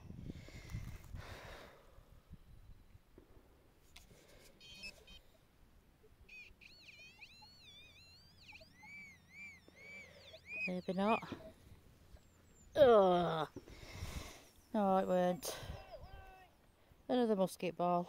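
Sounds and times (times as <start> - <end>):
high warbling detector tone: 4.6 - 5.2, 6.2 - 16.6
metal detector beeps: 4.6 - 5.3, 6.2 - 16.6.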